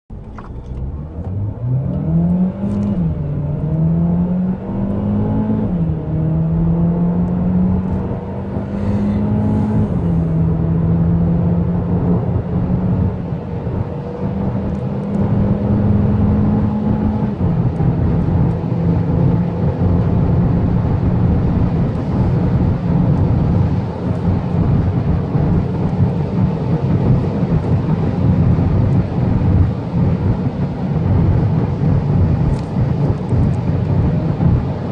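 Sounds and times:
car engine accelerating: 0:00.1 - 0:34.9
tyre and wind noise: 0:12.1 - 0:34.9.

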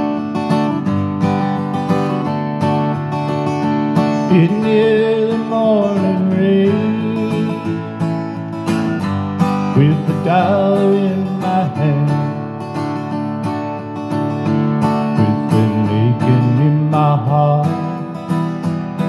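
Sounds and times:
acoustic guitar strumming: 0:00.0 - 0:19.0
man singing: 0:04.0 - 0:08.5, 0:09.4 - 0:12.8, 0:15.0 - 0:19.0.

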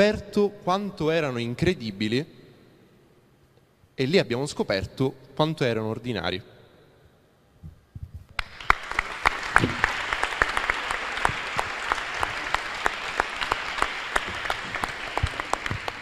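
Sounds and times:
audience applauding: 0:08.4 - 0:16.0.

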